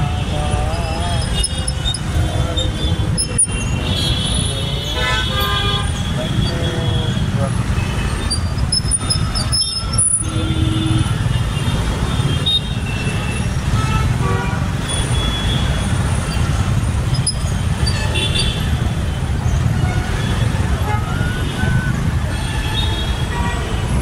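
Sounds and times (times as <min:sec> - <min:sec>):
low rumble of engines: 0:00.0 - 0:24.0
low vehicle horn: 0:00.1 - 0:08.3.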